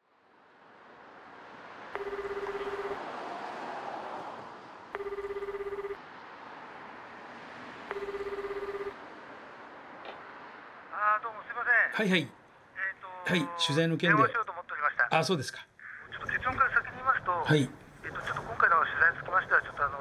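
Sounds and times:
telephone ringback tone: 1.9 - 3.0, 4.9 - 6.0, 7.9 - 9.0.

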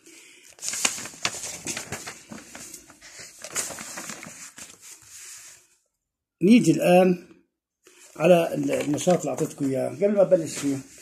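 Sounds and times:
paper rustling: 0.4 - 5.7, 7.9 - 11.0.

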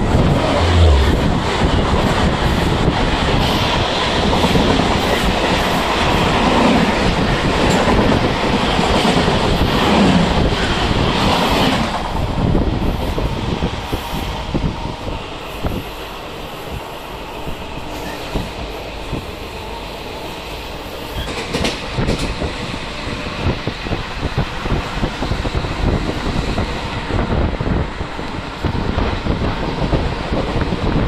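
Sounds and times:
train wheels rumbling on rails: 0.0 - 31.0
clickety-clack knocks: 21.2 - 22.5.

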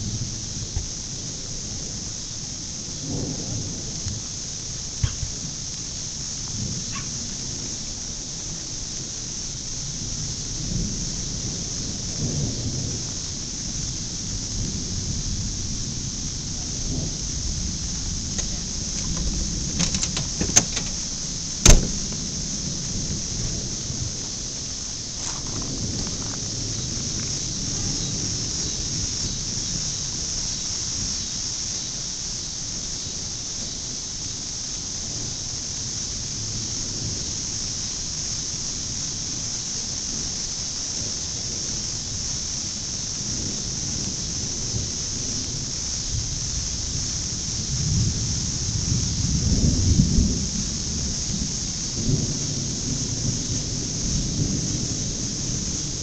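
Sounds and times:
high hiss: 0.0 - 56.0
wind rumble on microphone: 0.0 - 56.0
thunder rumble: 10.0 - 31.2
sharp knock: 21.6 - 22.1.

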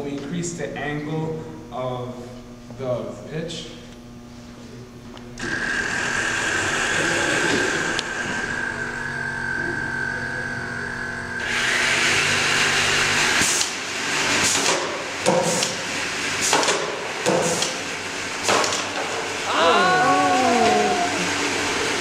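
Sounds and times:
electric motors whining: 5.1 - 14.3, 19.2 - 22.0.

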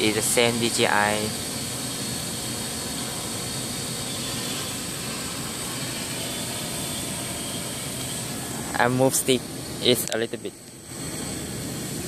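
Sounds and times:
drone propellers whirring: 0.0 - 12.0.

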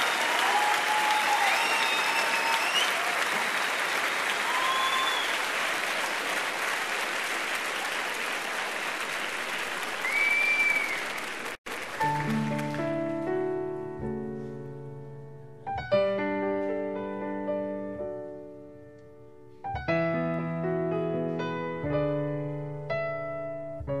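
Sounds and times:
whistles and cheers: 0.0 - 6.1, 9.9 - 11.3
audience applauding: 0.0 - 13.3
piano: 0.0 - 24.0.

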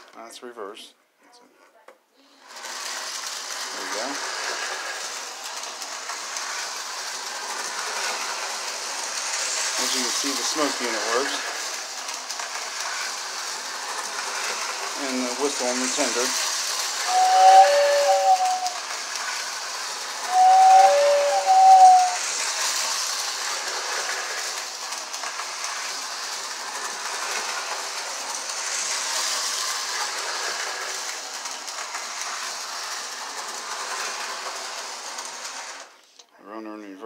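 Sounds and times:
model train whirr and rail clatter: 0.0 - 0.8, 1.7 - 37.0
two-tone train whistle: 17.0 - 18.8, 20.2 - 22.2.

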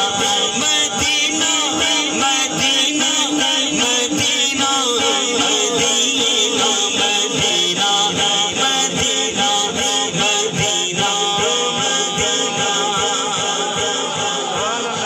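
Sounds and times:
man singing into a microphone: 0.0 - 15.0
steady beat: 0.0 - 15.0.

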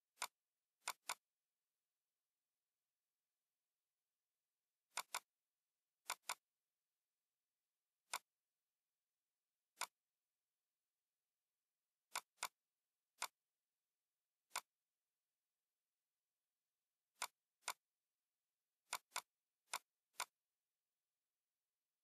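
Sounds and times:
computer mouse button clicks: 4.9 - 5.3, 6.0 - 6.4.

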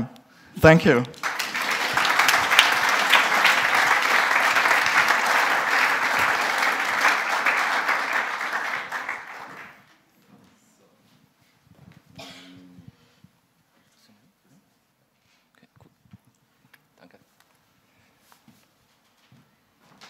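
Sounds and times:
audience applauding: 0.8 - 9.9.

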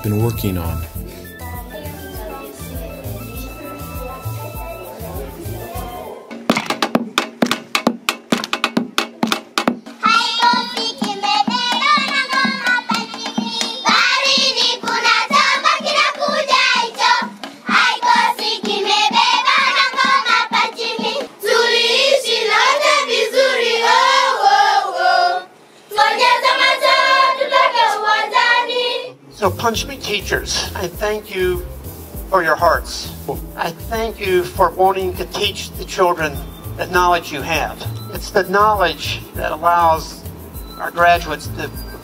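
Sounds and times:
struck beats: 5.8 - 21.3
children singing in chorus: 10.0 - 29.2.

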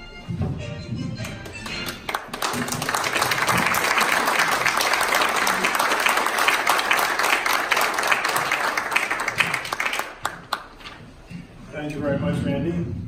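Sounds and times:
audience applauding: 1.2 - 10.9.

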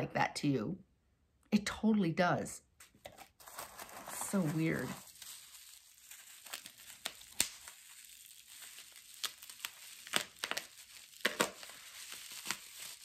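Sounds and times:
packaging crinkling: 3.0 - 13.0.

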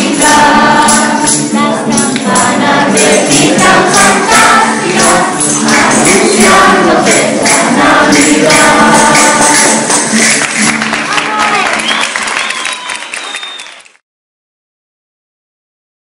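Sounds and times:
children and adults singing: 0.0 - 10.4
strummed classical guitar: 0.0 - 10.9
jingling percussion: 0.0 - 11.0.

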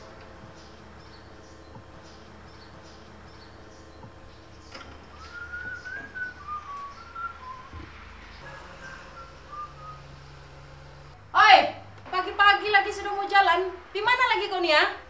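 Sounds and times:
man whistling a tune: 5.1 - 7.8, 8.8 - 10.2.

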